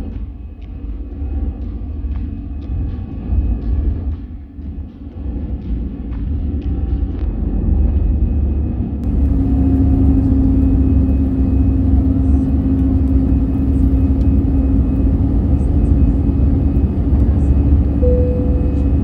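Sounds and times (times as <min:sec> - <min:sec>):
jet engines at takeoff thrust: 0:06.8 - 0:19.0
steady droning tone: 0:07.4 - 0:19.0
wheels rumbling on runway: 0:09.0 - 0:19.0.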